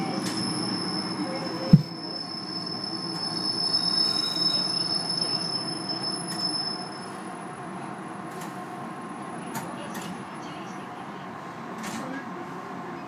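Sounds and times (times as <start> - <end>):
train running gear rumble: 0.0 - 4.0
train brakes squealing: 0.0 - 7.4.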